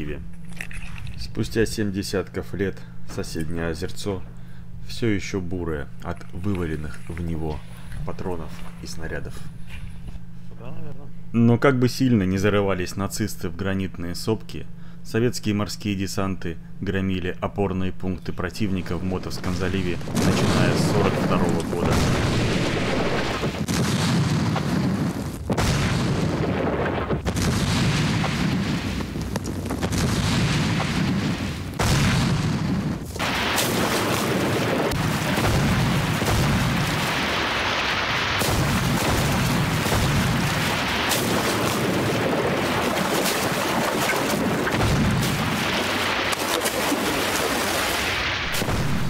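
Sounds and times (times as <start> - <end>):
explosions rumbling: 18.6 - 49.0
gunfire shots: 18.8 - 49.0.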